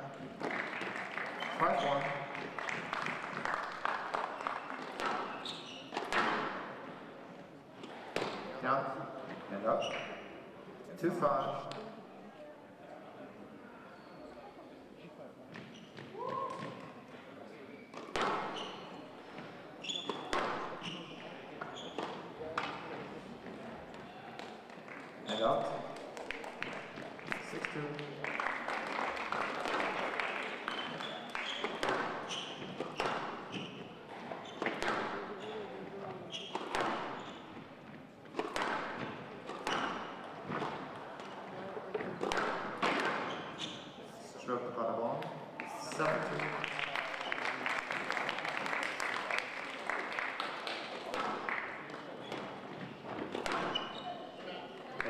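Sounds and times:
spectators applauding: 0.4s - 5.0s, 26.0s - 31.7s, 45.6s - 51.8s
shoes squeaking on wooden floor: 4.4s - 6.2s, 9.7s - 10.3s, 15.5s - 16.8s, 18.2s - 22.4s, 25.2s - 25.9s, 30.6s - 41.3s, 42.0s - 44.0s, 52.1s - 54.9s
squash ball cracking off rackets: 17.9s - 18.9s, 30.7s - 35.4s, 36.4s - 37.3s, 38.3s - 43.7s, 51.1s - 54.0s.

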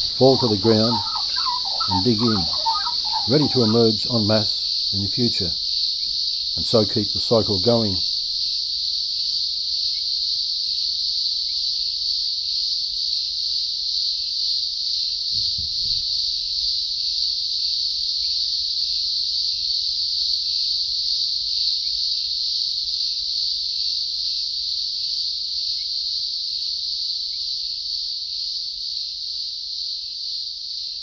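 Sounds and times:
cicadas droning: 0.0s - 31.0s.

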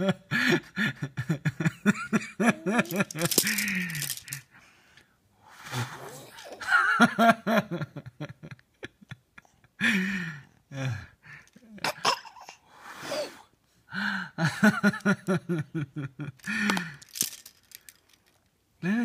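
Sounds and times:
baby girl giggling: 2.4s - 3.6s
puffs of breath blown: 4.5s - 6.2s, 12.7s - 13.5s.

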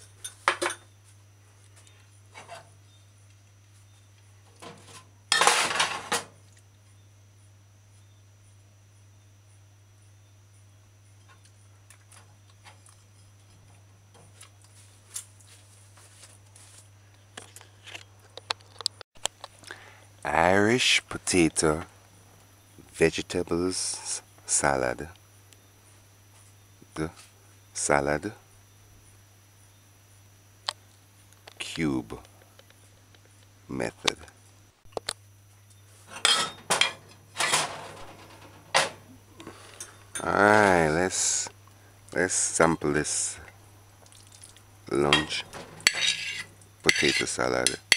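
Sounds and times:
dishware knocks and scrapes: 4.6s - 6.3s, 36.1s - 39.0s, 45.1s - 47.9s
ceramic plate clinks: 45.1s - 47.9s.

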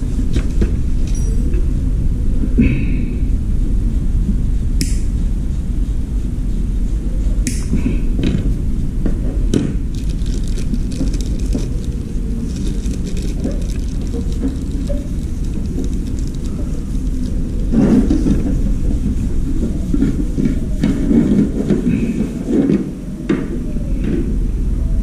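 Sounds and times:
steady low rumble: 0.0s - 25.0s
plastic bag crinkling: 9.8s - 18.7s.

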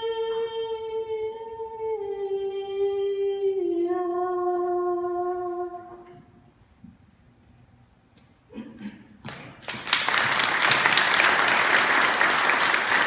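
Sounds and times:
congregation applauding: 9.2s - 13.0s.

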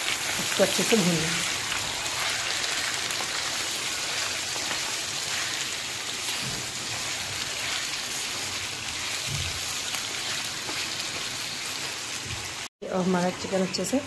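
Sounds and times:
chicken sizzling in hot oil: 0.0s - 14.0s.

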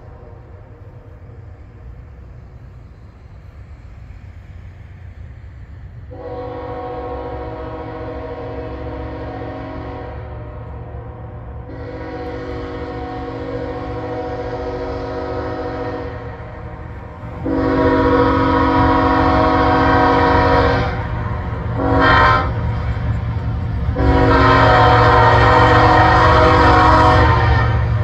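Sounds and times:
locomotive air horn blasts: 6.1s - 16.7s, 17.4s - 28.0s.

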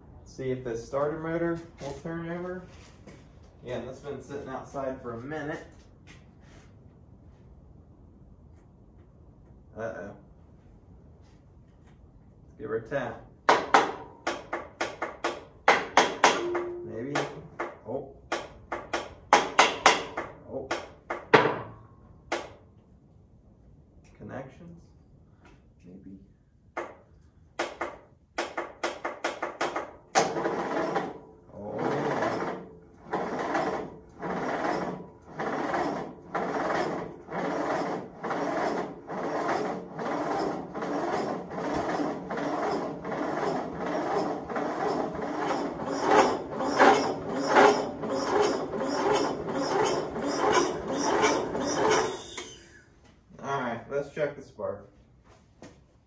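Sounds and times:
starter clicks and bumps: 27.6s - 52.6s
starter cranking engine: 30.2s - 52.8s.

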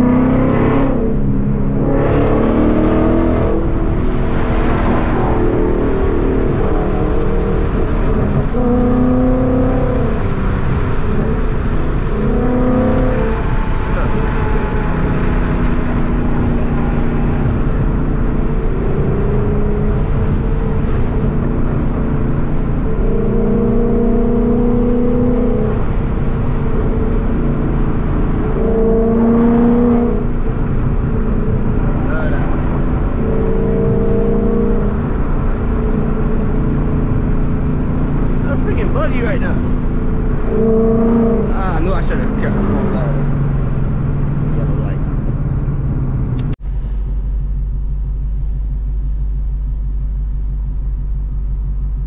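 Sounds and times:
droning tone: 0.0s - 39.0s, 45.3s - 52.0s
car engine cruising: 0.0s - 52.0s
road noise: 0.0s - 52.0s.

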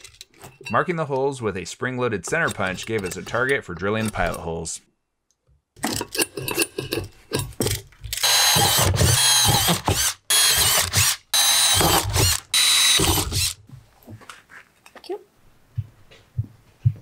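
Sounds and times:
power drill squealing through steel: 8.2s - 13.6s.

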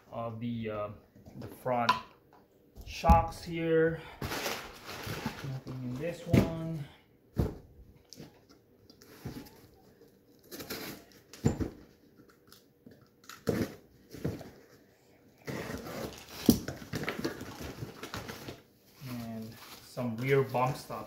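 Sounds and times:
wrapping paper rustling: 4.2s - 6.3s, 16.0s - 21.0s.

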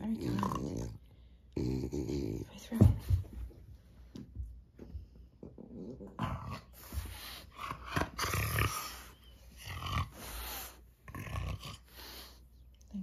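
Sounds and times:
dog breathing noisily: 10.0s - 11.0s.

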